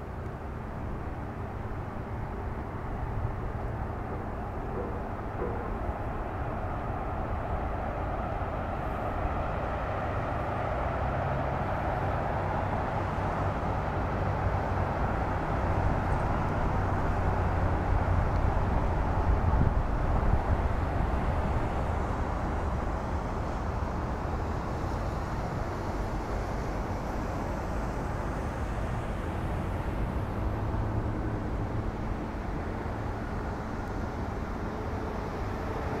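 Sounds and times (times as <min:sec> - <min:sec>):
low outdoor rumble: 0:00.0 - 0:10.8
car engine low hum: 0:00.0 - 0:36.0
outdoor rush of noise: 0:00.0 - 0:36.0.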